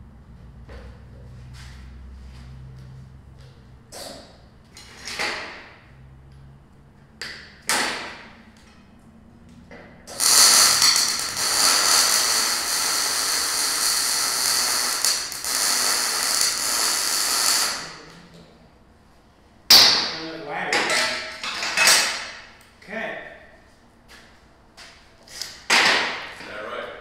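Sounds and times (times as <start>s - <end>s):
arc welding hiss: 10.1s - 18.0s.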